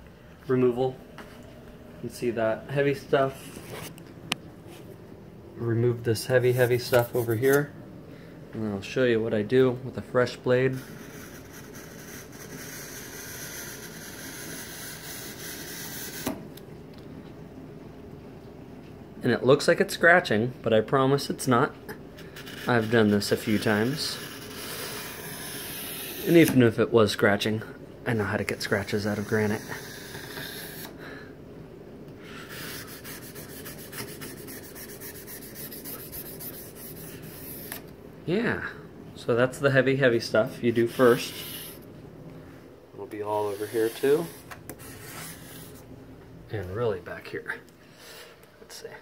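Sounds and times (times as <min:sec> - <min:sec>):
razor scraper rasping on stone: 0:10.8 - 0:16.3, 0:22.4 - 0:26.6, 0:28.8 - 0:31.0, 0:43.3 - 0:45.8.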